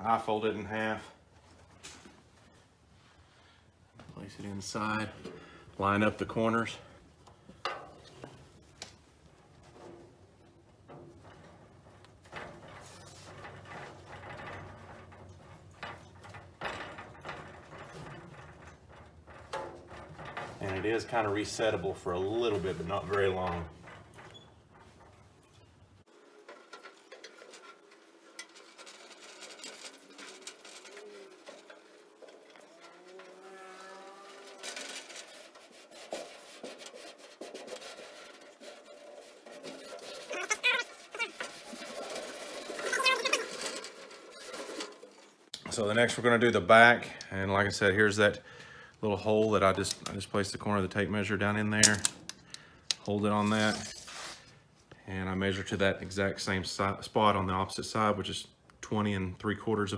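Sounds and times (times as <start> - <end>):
hands rubbing carpet on metal: 28.8 - 43.6.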